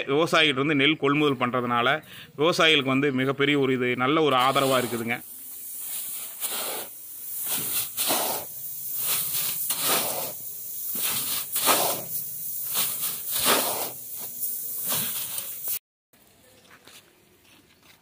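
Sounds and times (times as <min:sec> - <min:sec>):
grain pouring into a sack: 0:04.4 - 0:15.8.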